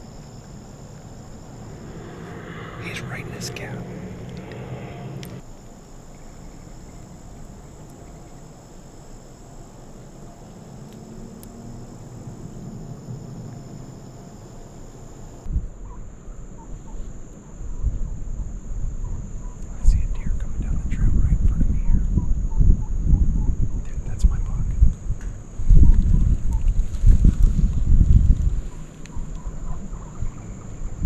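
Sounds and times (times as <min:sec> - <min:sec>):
high-pitched insect chorus: 0:00.0 - 0:15.5, 0:16.5 - 0:24.8
low rumbling noise: 0:00.0 - 0:15.8.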